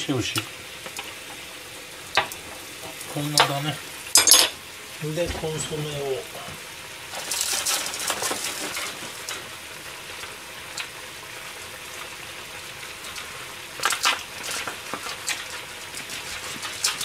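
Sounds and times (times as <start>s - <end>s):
stew bubbling in a pot: 0.0s - 17.0s
crackling and clattering: 4.2s - 9.5s.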